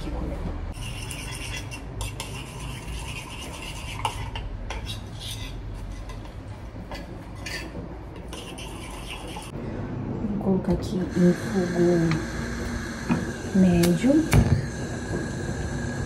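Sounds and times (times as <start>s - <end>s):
spoon scraping ceramic plate: 0.7s - 9.5s.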